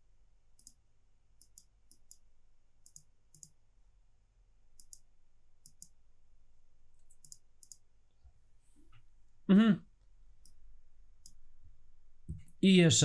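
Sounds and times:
computer mouse clicks: 0.6s - 0.8s, 1.4s - 3.6s, 4.8s - 6.0s, 7.0s - 7.9s, 10.4s - 10.6s, 11.2s - 11.4s.

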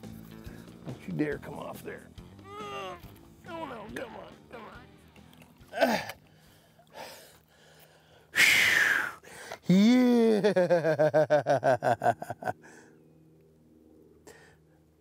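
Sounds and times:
man crying out and laughing: 2.4s - 3.8s, 5.7s - 6.2s, 8.4s - 12.6s
man exhaling sharply: 8.3s - 9.6s.

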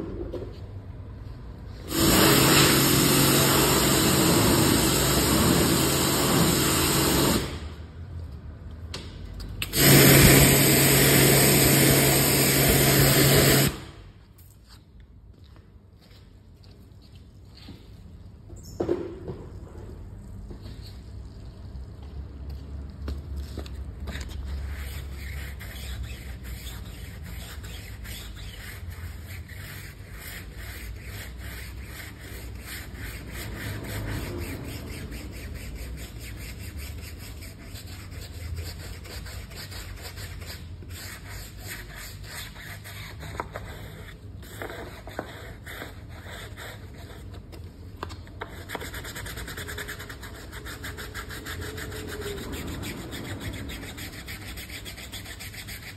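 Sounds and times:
brush scrubbing through foam: 24.4s - 44.0s, 49.0s - 55.9s.

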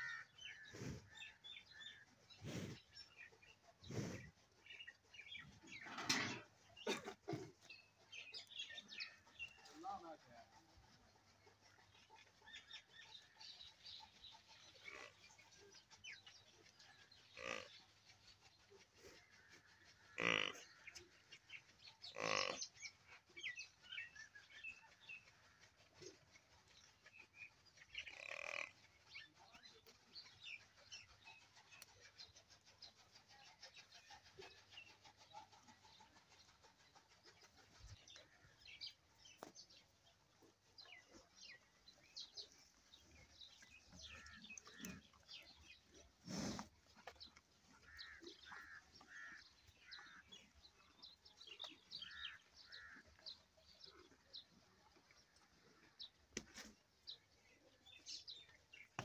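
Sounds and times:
cattle lowing: 40.5s - 53.2s.

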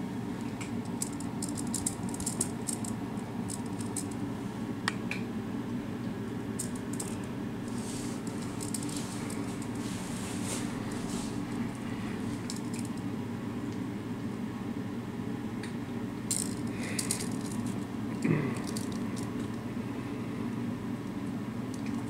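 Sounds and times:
low room hum: 0.0s - 22.0s
kitten paws scratching and rustling: 6.7s - 13.0s.

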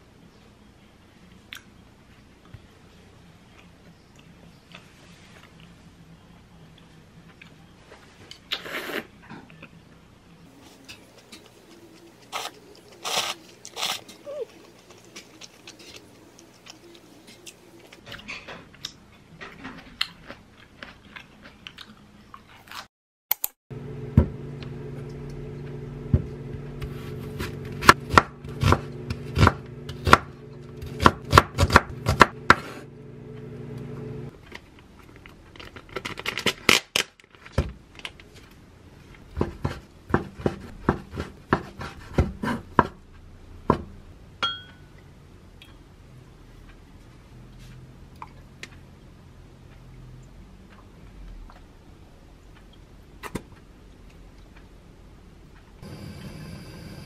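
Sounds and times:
quiet eating sounds: 0.2s - 22.9s, 45.0s - 55.7s
steady low hum: 23.7s - 34.4s, 42.6s - 57.0s
knife chopping on wooden board: 27.3s - 32.7s, 39.4s - 43.0s.

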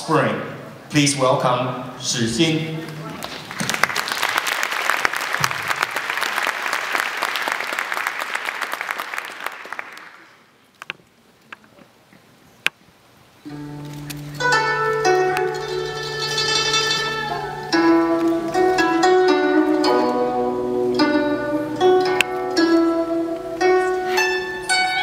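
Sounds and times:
scattered claps: 2.9s - 10.3s
audience applauding: 2.9s - 10.4s
music with held low note: 13.5s - 25.0s.

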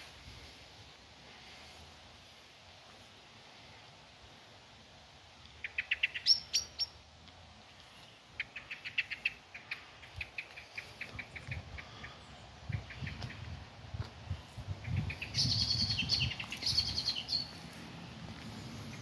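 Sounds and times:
songbird chirping: 5.4s - 19.0s.

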